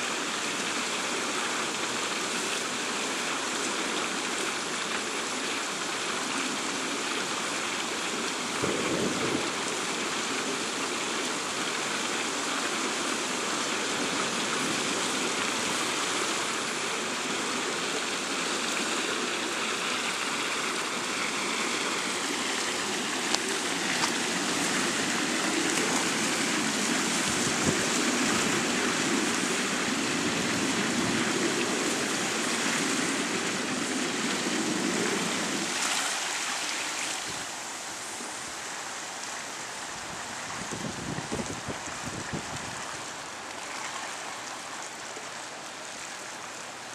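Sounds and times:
choppy water: 0.0s - 46.9s.

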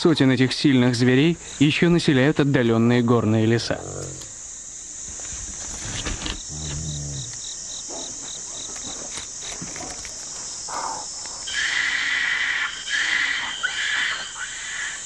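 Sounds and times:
forest insects buzzing: 0.0s - 15.0s
monkey calls: 10.7s - 15.0s.

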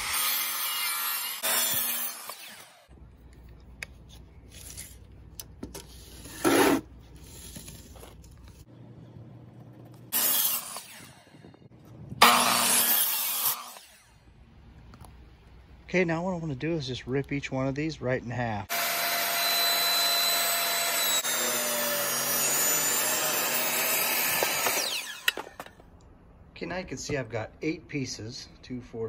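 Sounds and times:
miter saw cutting wood: 0.0s - 2.9s, 10.1s - 11.5s, 12.2s - 14.2s, 18.7s - 25.7s.

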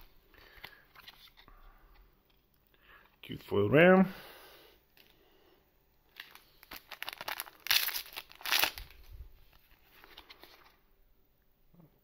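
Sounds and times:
foil pack tearing and crinkling: 6.2s - 9.0s.

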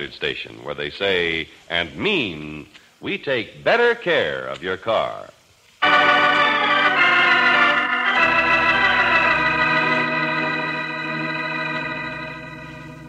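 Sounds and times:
organ chords: 5.8s - 13.0s.

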